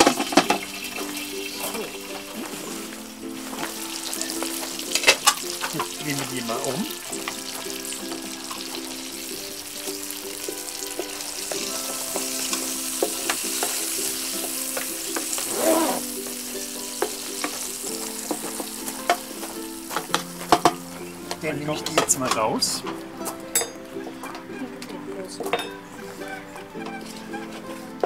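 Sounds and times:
prawns sizzling in oil: 0.0s - 22.1s.

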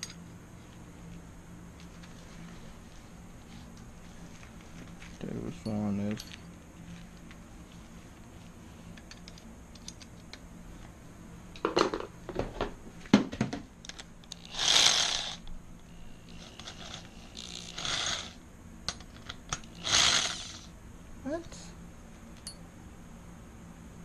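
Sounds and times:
electric drill running: 14.3s - 18.4s, 19.6s - 20.7s.

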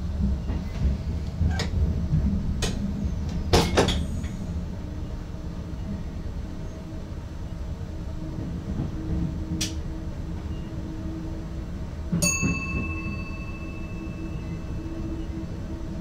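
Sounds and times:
train cab rumble: 0.0s - 16.0s
bell-like ding: 12.2s - 15.0s.

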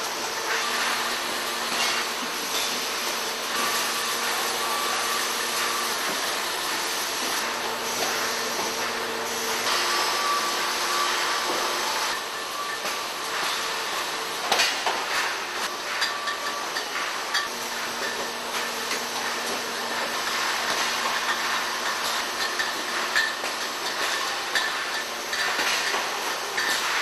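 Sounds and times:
bottling machinery clatter: 0.0s - 27.0s
glass bottles clinking: 18.9s - 27.0s.

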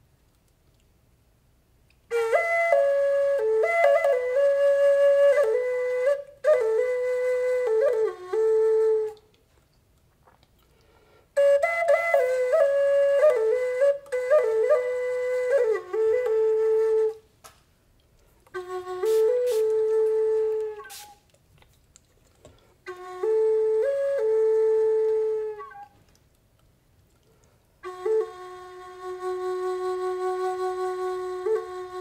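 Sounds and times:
wooden flute melody: 2.0s - 9.6s, 11.0s - 17.5s, 18.2s - 21.4s, 22.6s - 26.3s, 27.2s - 32.0s.

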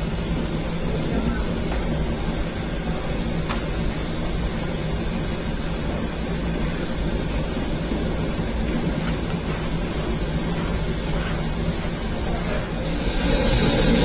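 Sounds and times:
oven rushing noise: 0.0s - 14.0s
low hum: 12.8s - 14.0s.

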